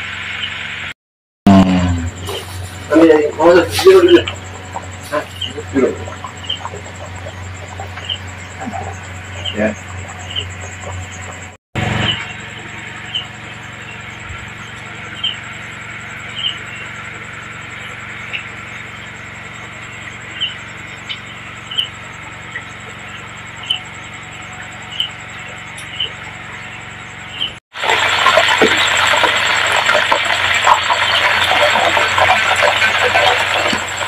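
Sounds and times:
faint high pulsing whine: 1.6 - 29.8
small animal chirping: 3.8 - 12.2, 15.0 - 15.5, 16.1 - 17.0, 17.8 - 27.6.

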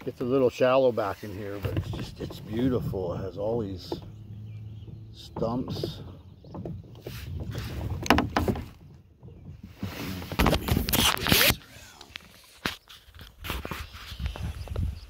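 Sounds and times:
rubbing scrape: 7.0 - 7.9, 12.4 - 14.7.

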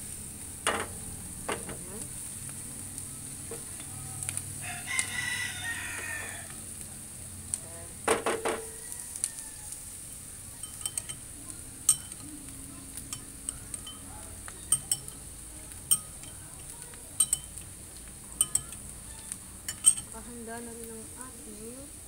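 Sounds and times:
onions sizzling in a frying pan: 0.0 - 22.0
spatula tapping a pan: 0.7 - 2.1, 3.4 - 4.3, 8.1 - 9.3, 10.5 - 20.2.

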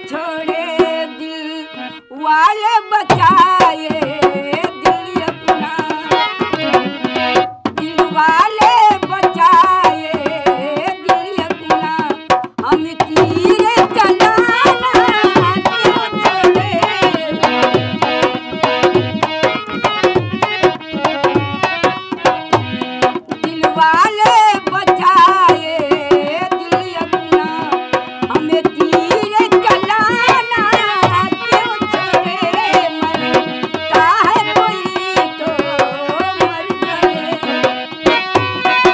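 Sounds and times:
elderly woman singing: 0.0 - 6.2, 7.8 - 17.6, 23.4 - 38.0
barrel drum played by hand: 2.6 - 38.9.

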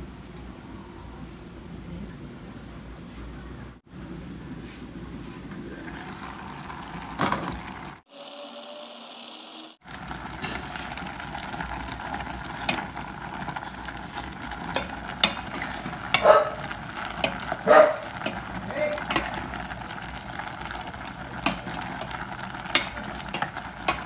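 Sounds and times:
utensil scraping metal pot: 12.2 - 24.0
glass lid clanking: 14.6 - 19.7, 21.4 - 24.0.

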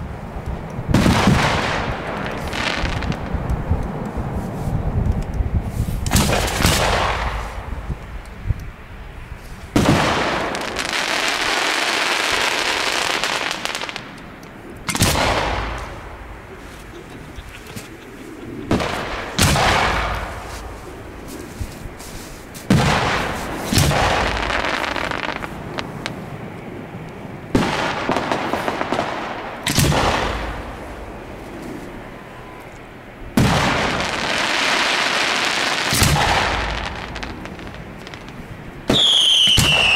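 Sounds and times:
firework shells bursting: 9.6 - 31.1, 33.4 - 39.9
firework hiss: 14.9 - 26.5.

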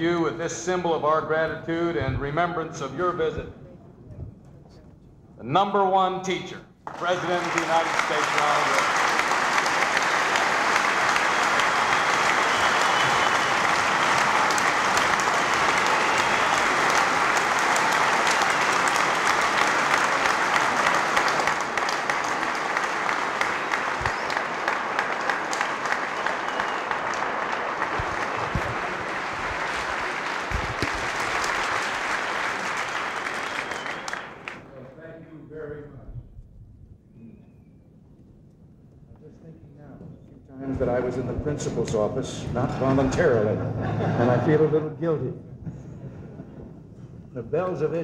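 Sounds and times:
large audience applauding: 6.8 - 34.7.

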